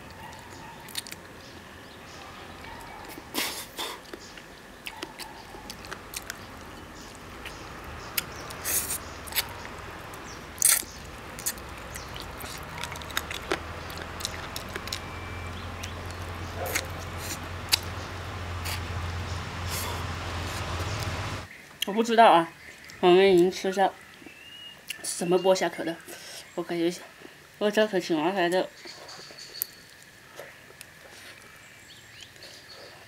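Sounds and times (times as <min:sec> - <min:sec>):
person biting and chewing: 0:00.8 - 0:01.2, 0:04.8 - 0:06.4, 0:08.2 - 0:09.5, 0:10.6 - 0:15.0, 0:15.8 - 0:17.9
prawn shells clicking and crunching: 0:04.0 - 0:18.0.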